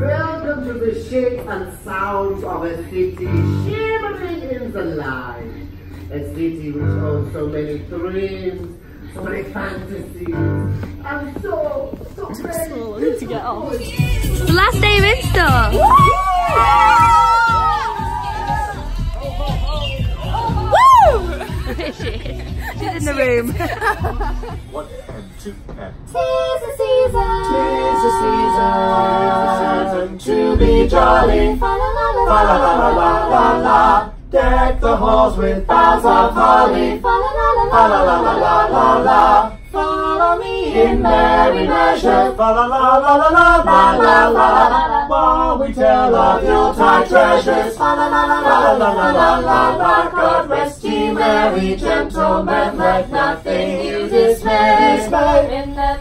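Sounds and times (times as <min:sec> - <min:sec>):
group singing a cappella carol: 0:26.0 - 0:56.0.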